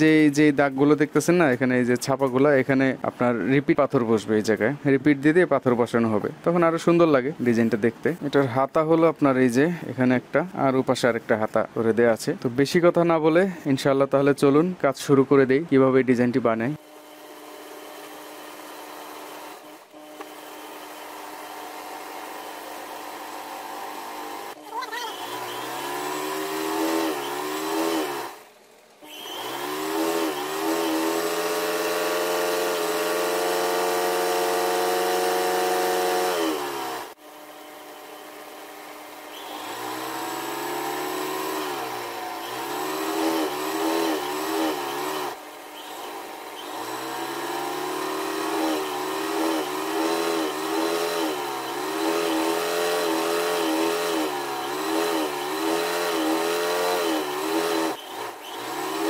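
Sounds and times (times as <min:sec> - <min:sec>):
sewing machine motor humming: 0:16.8 - 0:37.2, 0:37.8 - 0:59.0.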